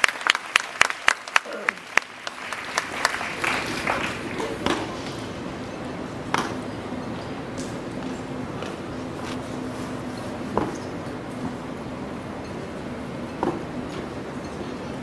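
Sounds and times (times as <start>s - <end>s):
applause: 0.0s - 5.2s
low crowd murmur: 1.2s - 15.0s
steady low hum: 1.8s - 15.0s.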